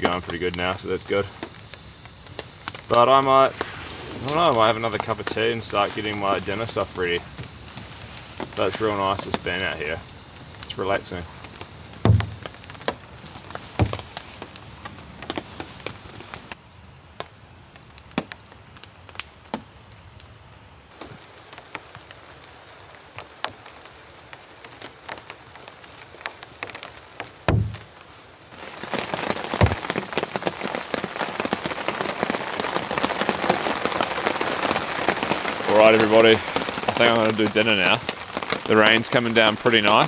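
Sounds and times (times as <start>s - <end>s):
rain falling: 0.0s - 40.0s
dull low thumps: 12.0s - 12.7s, 13.8s - 14.0s, 27.5s - 27.9s.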